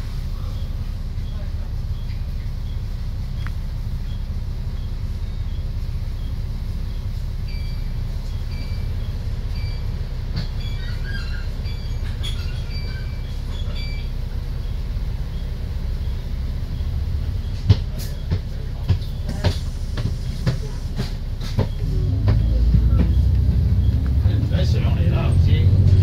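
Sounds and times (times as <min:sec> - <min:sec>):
diesel bus engine idling: 0:00.0 - 0:26.0.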